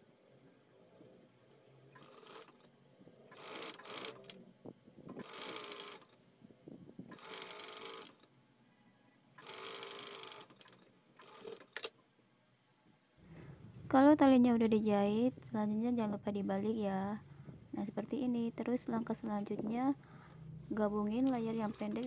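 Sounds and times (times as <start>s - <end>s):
electric sewing machine running: 2.0s - 2.7s, 3.3s - 4.3s, 5.2s - 6.1s, 7.1s - 8.2s, 9.4s - 11.7s, 21.2s - 22.0s.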